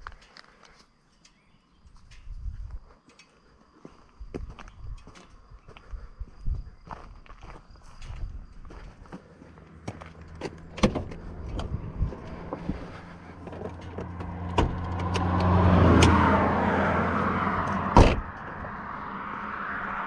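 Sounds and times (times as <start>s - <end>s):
passing vehicle: 9.5s - 20.0s
car door shutting thud: 17.7s - 18.4s
car door latch clicking: 17.9s - 18.5s.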